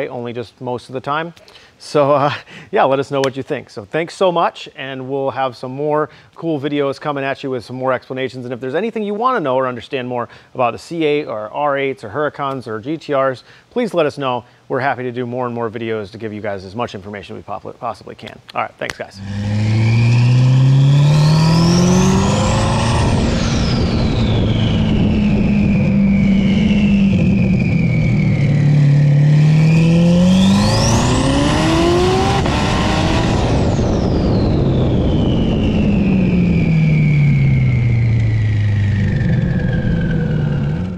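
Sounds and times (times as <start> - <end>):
car engine revving: 19.2 - 40.9
turbo whistle: 19.2 - 40.9.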